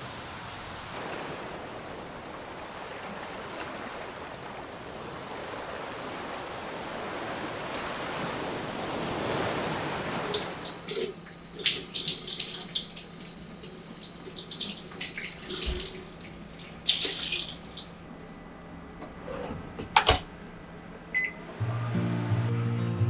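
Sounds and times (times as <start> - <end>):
water splashing from tap: 10.1 - 18.0
microwave door click: 19.0 - 20.3
guitar music: 21.4 - 23.0.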